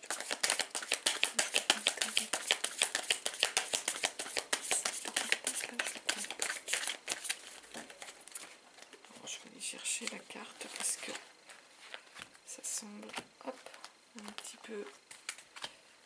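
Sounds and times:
cards being shuffled by hand: 0.0s - 8.9s, 13.0s - 15.8s.

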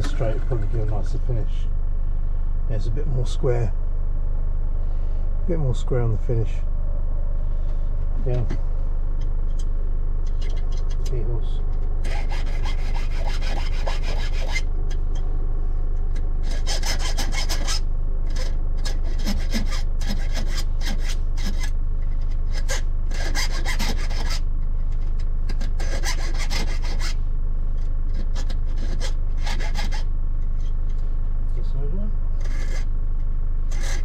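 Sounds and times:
low hum: 0.0s - 34.0s
file rasping on metal key: 12.0s - 14.7s, 16.4s - 24.4s, 25.5s - 27.2s, 28.1s - 30.7s, 32.4s - 32.9s, 33.7s - 34.0s.

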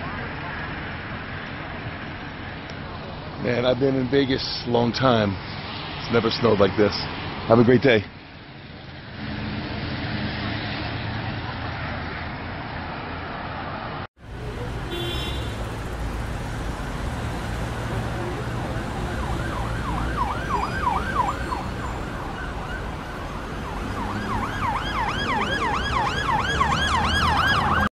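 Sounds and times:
low city traffic rumble: 0.0s - 27.9s
road noise from moving vehicle: 0.0s - 27.9s
siren yelping: 17.7s - 27.9s.

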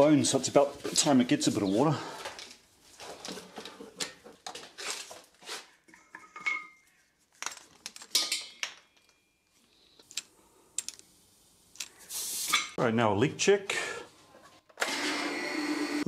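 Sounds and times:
metal fittings clinking and rattling: 6.1s - 9.2s, 10.0s - 11.1s.

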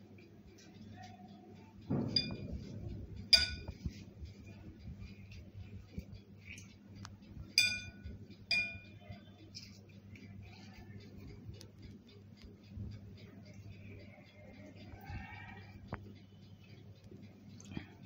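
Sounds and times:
dull knock on glass bowl: 1.9s - 2.7s
glass bowl clinking: 2.0s - 2.7s, 3.4s - 3.8s, 7.6s - 8.9s.

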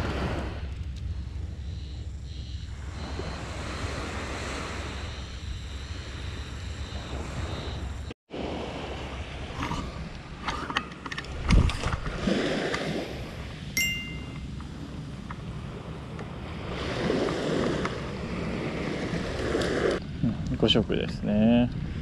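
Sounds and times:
small waves washing on shore: 0.0s - 1.4s, 2.7s - 21.0s
wind on microphone: 0.0s - 22.0s
short metallic ring: 13.8s - 14.5s.

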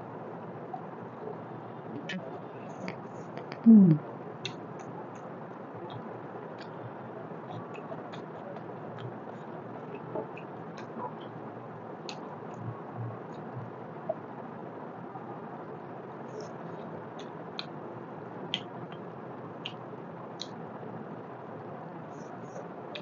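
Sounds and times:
voice humming: 2.0s - 4.0s.

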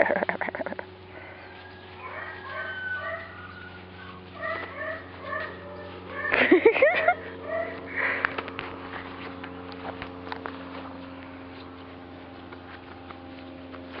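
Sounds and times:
steady low hum: 0.0s - 14.0s
scattered clicks and rustles: 7.7s - 14.0s.

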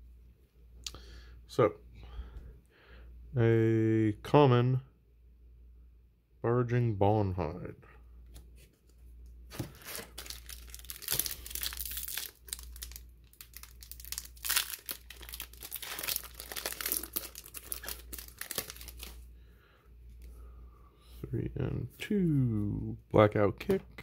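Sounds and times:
foil wrapper crinkling and tearing: 9.5s - 19.2s.

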